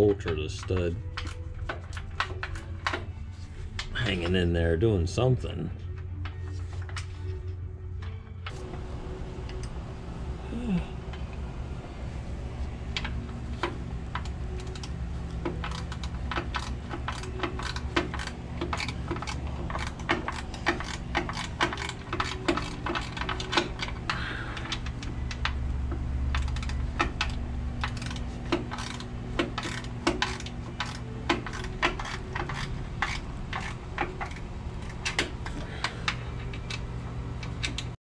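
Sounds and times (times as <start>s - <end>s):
steady low hum: 0.0s - 38.0s
wrench metal clicks: 13.0s - 38.0s.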